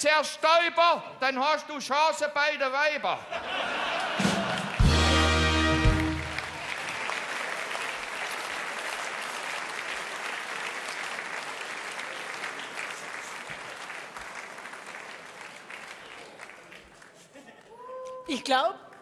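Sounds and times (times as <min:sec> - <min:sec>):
audience clapping and cheering: 0:03.8 - 0:19.0
musical chord: 0:04.8 - 0:06.4.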